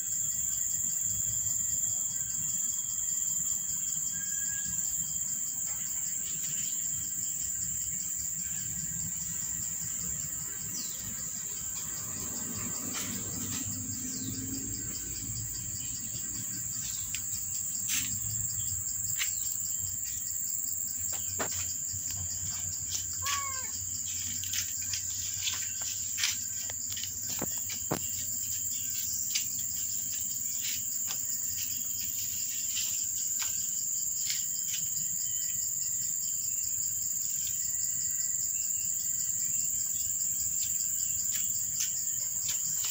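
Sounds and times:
high-pitched insect chorus: 0.0s - 42.9s.

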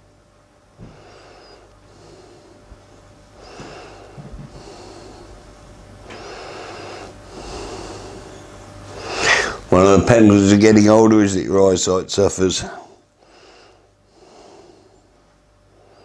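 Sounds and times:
man breathing heavily: 0.8s - 9.7s, 12.8s - 16.0s.

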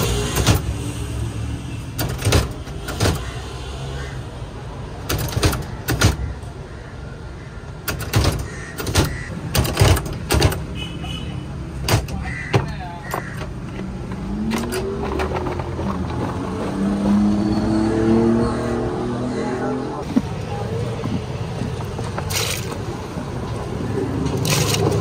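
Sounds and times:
road traffic rumble: 0.0s - 25.0s
vehicle engine revving: 14.2s - 20.1s.

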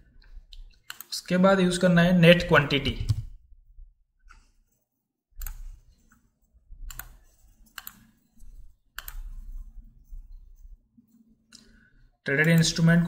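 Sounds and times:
computer mouse clicking: 0.2s - 1.1s, 3.0s - 3.4s, 5.4s - 11.8s, 12.4s - 12.8s.

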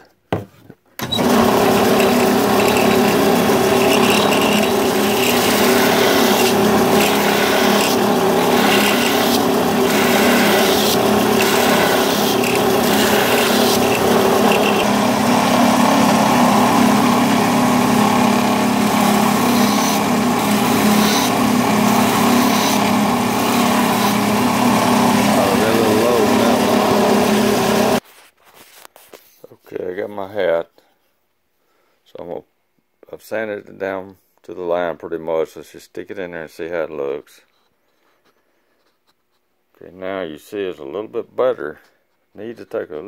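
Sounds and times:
belt sander running: 1.0s - 28.0s
sanding belt hissing on wood: 1.2s - 28.0s.

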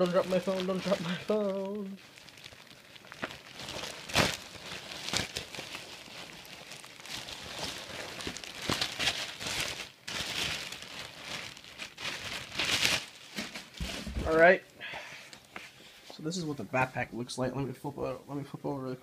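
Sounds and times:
packaging crinkling: 0.0s - 14.6s.

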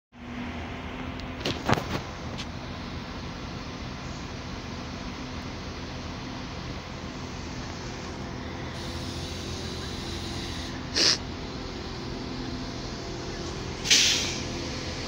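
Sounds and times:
diesel engine idling hum: 0.2s - 15.0s
sharp air hisses: 8.8s - 11.2s, 13.8s - 14.5s.

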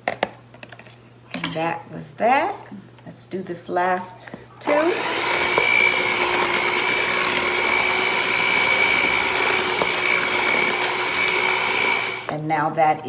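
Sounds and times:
electric hand mixer whirring: 4.6s - 12.4s.

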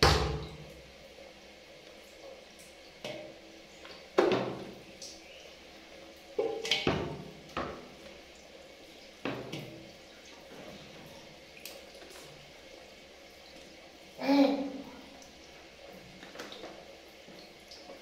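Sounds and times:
splashes and knocks on metal: 0.0s - 0.9s, 3.0s - 4.8s, 6.4s - 8.0s, 9.2s - 9.9s.

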